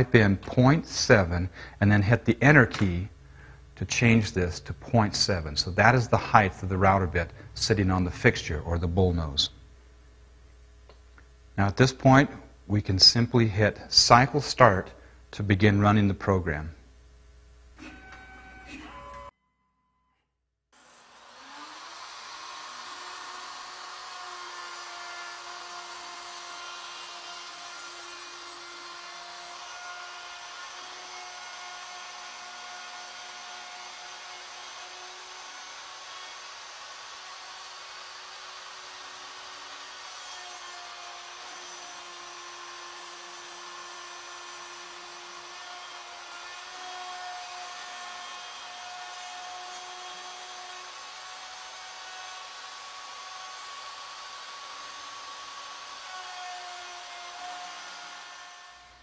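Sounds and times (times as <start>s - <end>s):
wood router whine: 17.8s - 19.3s, 20.8s - 59.0s.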